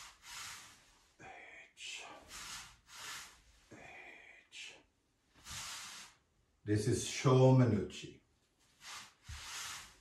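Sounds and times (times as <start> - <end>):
man breathing noisily: 0.0 - 4.8.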